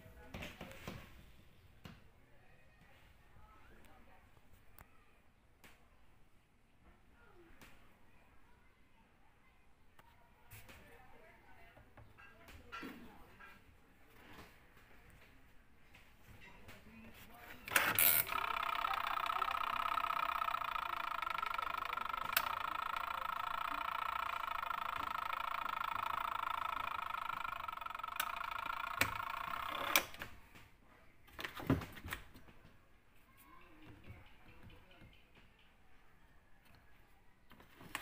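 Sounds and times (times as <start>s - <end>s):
washing machine whirring: 17.5s - 30.4s.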